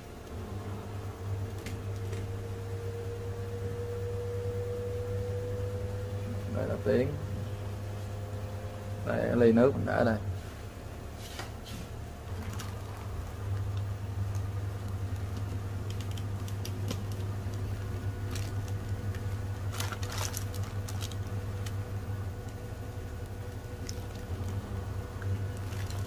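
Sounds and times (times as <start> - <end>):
washing machine drum spinning: 12.0 - 26.0.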